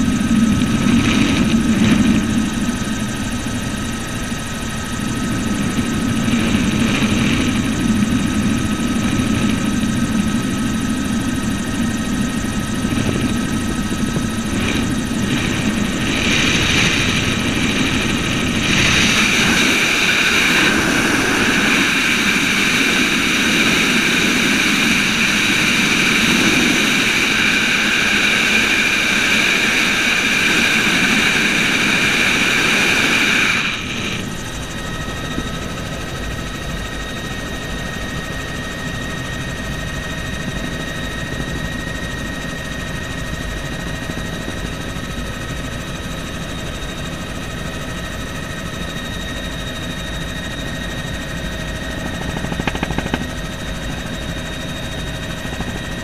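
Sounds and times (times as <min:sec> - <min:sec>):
helicopter rotor and engine noise: 0:00.0 - 0:56.0
steady high whine: 0:00.0 - 0:56.0.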